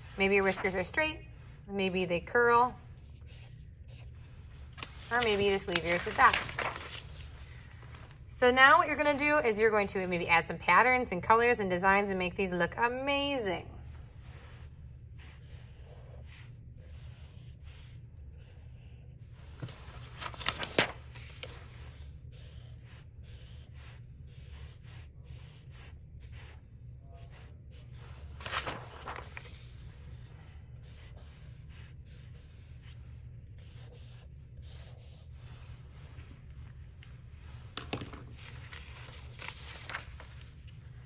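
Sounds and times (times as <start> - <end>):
marker scratching on paper: 0.0 - 6.3, 30.0 - 36.2
steady low hum: 0.0 - 41.0.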